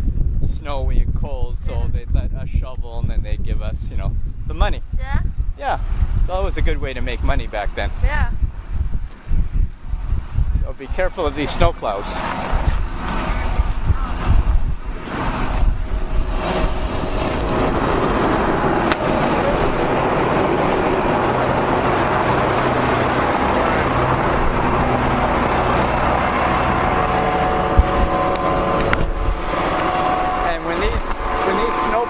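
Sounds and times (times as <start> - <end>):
snowplow truck rumbling: 11.4 - 32.0.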